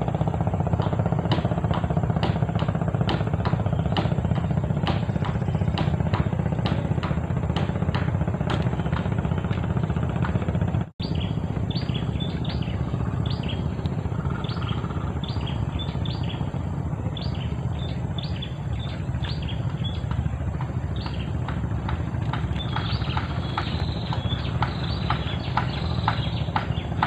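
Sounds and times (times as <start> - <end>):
steady low rumble: 0.0 - 27.0
small birds chirping: 3.4 - 6.9, 11.0 - 27.0
regular ticking: 12.4 - 27.0.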